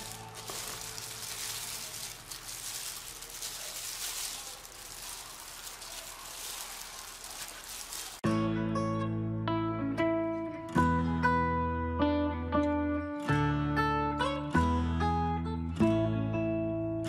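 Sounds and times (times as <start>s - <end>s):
plastic glove crinkling: 0.0s - 8.2s.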